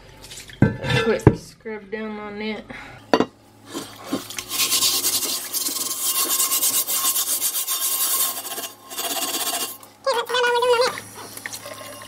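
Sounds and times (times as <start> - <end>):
scrubber scrubbing cast iron griddle: 3.7 - 9.8.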